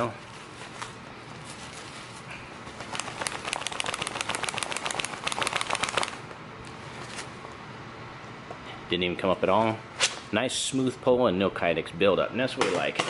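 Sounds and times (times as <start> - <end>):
magazine rattling in a pouch: 2.8 - 6.2.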